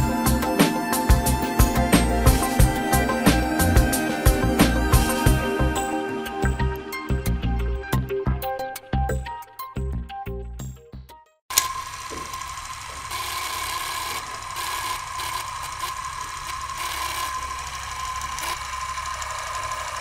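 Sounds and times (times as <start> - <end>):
high whine: 0.0 - 8.4
film projector clattering: 11.5 - 20.0.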